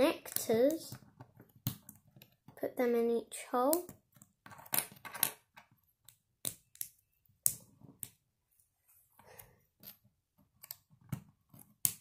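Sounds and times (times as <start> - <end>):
plastic bricks clicking: 3.7 - 8.2.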